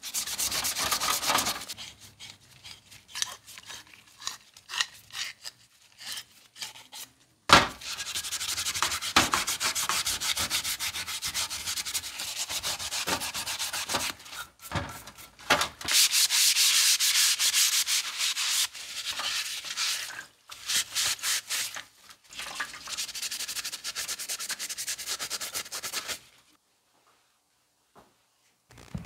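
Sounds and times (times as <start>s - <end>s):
scouring pad scrubbing metal: 0.0s - 7.0s, 7.8s - 21.8s.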